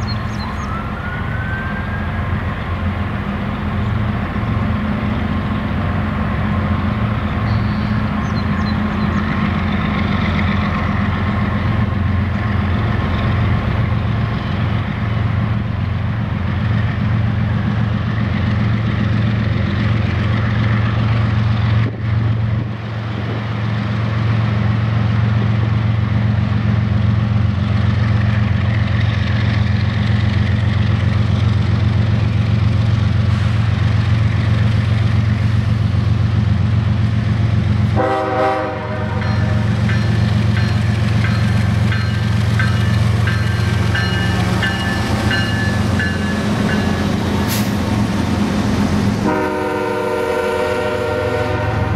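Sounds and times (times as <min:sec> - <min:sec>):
diesel locomotive engine drone: 0:00.0 - 0:51.9
locomotive horn blast: 0:37.9 - 0:39.6, 0:49.2 - 0:51.9.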